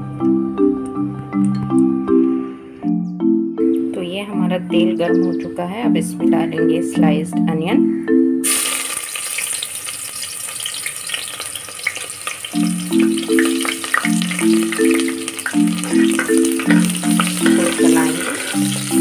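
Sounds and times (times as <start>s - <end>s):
light music with mallet percussion: 0.0s - 8.5s, 12.5s - 19.0s
onion sizzling in hot oil: 8.4s - 19.0s.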